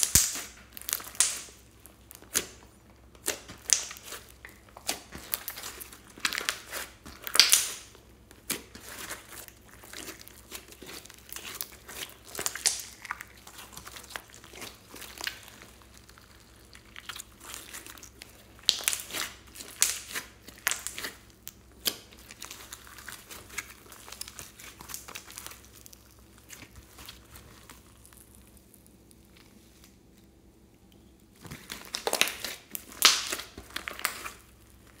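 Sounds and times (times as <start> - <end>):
slime crackling and popping: 0.0 - 30.0, 31.4 - 35.0.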